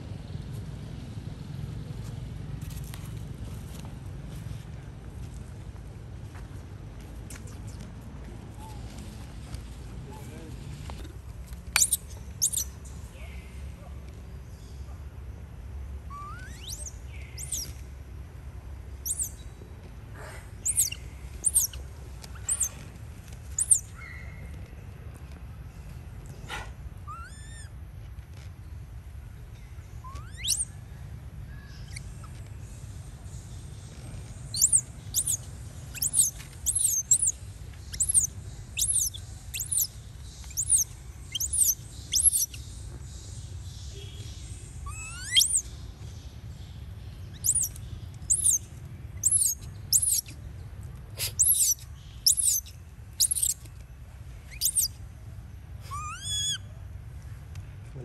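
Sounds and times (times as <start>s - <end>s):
infant monkey squealing: 11.8s - 12.7s, 16.1s - 17.7s, 19.0s - 19.4s, 20.6s - 21.8s, 22.4s - 22.8s, 23.6s - 23.9s, 27.1s - 27.7s, 30.0s - 30.8s, 31.8s - 32.3s, 34.4s - 42.6s, 44.8s - 45.7s, 47.3s - 48.6s, 49.2s - 50.4s, 51.2s - 53.6s, 54.5s - 55.0s, 55.8s - 56.7s.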